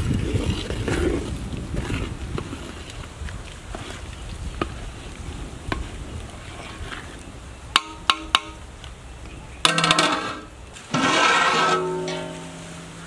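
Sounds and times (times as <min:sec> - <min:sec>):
ladle clinking on metal pot: 0:09.6 - 0:12.9
plucked string music: 0:11.6 - 0:13.0.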